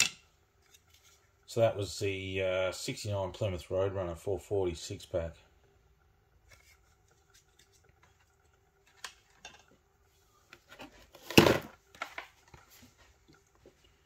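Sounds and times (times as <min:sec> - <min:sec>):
objects clattering: 0:10.6 - 0:12.9.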